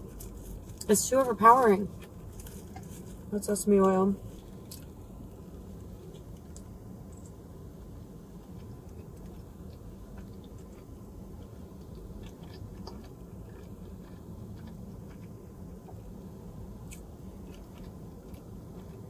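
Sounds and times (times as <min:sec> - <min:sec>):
low hum: 0:00.0 - 0:19.0
person chewing: 0:08.4 - 0:19.0.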